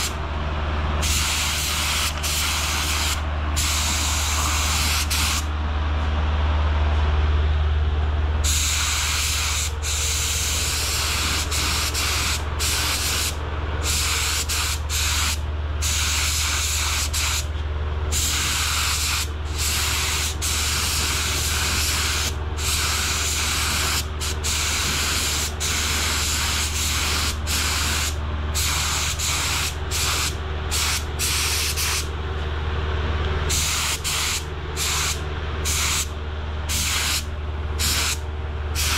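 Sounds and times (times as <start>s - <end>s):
low hum: 0.0s - 18.2s
spray gun hissing: 1.0s - 5.5s, 8.4s - 17.4s, 18.1s - 32.1s, 33.5s - 36.1s, 36.7s - 38.2s.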